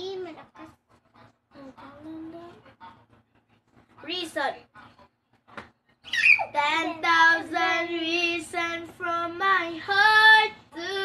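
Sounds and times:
girl singing unaccompanied: 6.4 - 11.0.

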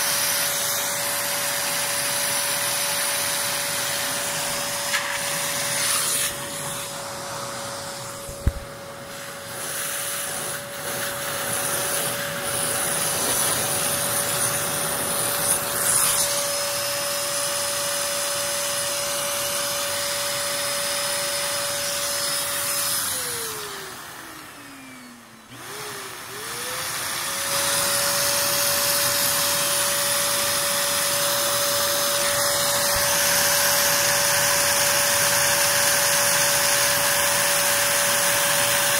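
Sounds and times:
vacuum cleaner motor whine: 0.0 - 38.9.

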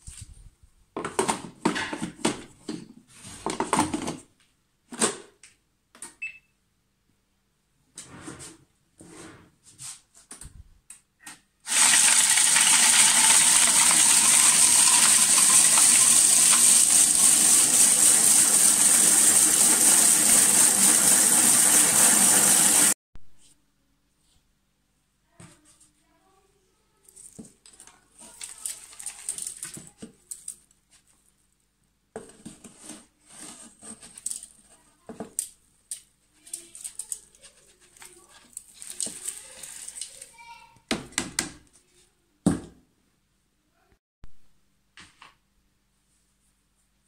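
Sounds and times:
blender grinding eggshells: 11.7 - 23.0, 38.6 - 40.3.

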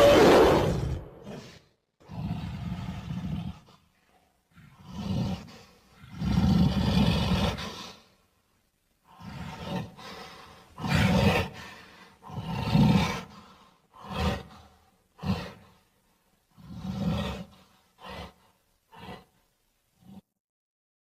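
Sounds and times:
creature roars and growls: 0.0 - 3.6, 10.8 - 13.4.

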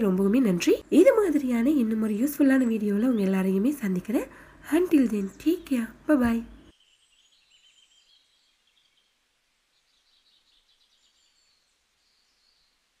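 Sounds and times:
faint bird chirps: 5.0 - 13.0.

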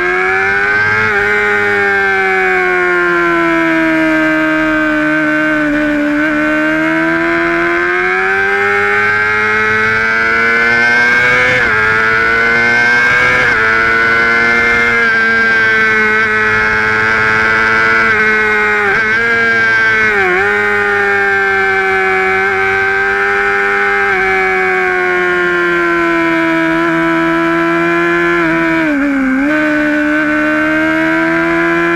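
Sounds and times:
motorcycle engine revving: 0.0 - 31.9.

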